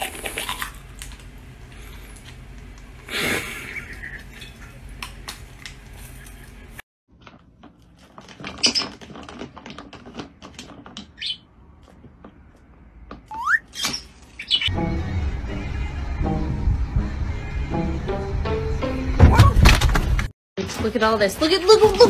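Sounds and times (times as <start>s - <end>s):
bird chirps: 13.3s - 14.7s.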